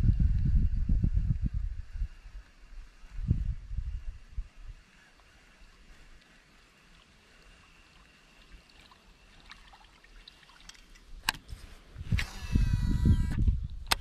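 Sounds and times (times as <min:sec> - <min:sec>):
water trickling: 0:05.0 - 0:11.2
camera handling clicks: 0:12.2 - 0:12.6, 0:13.2 - 0:14.0.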